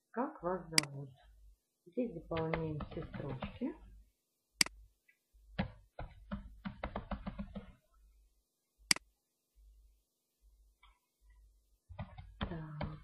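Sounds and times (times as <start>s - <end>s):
computer keyboard typing: 2.3s - 3.7s, 5.6s - 7.8s.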